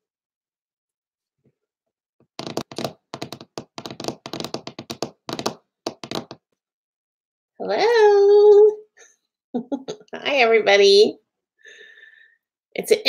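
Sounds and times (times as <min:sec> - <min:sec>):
rapid short taps and knocks: 0:02.4 - 0:06.4.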